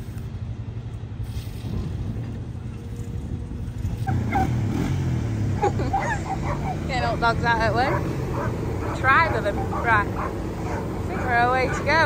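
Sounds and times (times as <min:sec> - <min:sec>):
farm machinery engines droning: 0:00.0 - 0:12.0
dogs barking and yelping: 0:04.1 - 0:04.7, 0:05.6 - 0:12.0.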